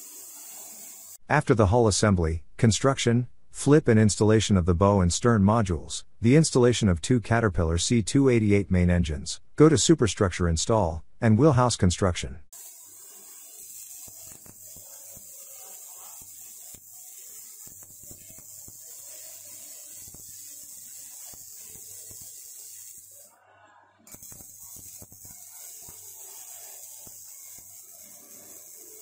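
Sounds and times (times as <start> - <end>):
steady high hiss: 0.0 - 1.4, 12.6 - 23.3, 24.1 - 29.0.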